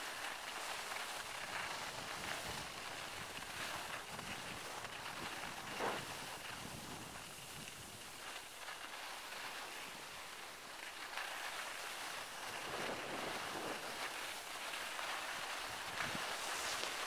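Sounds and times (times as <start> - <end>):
skis sliding over snow: 0.0 - 17.0
wind on microphone: 12.4 - 14.4, 15.6 - 17.0.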